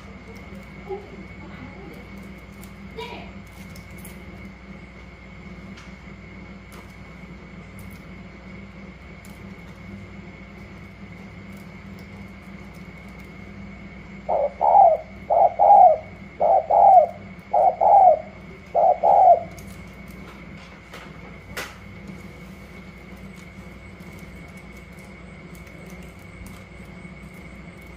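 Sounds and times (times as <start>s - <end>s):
dove cooing: 14.2s - 20.1s.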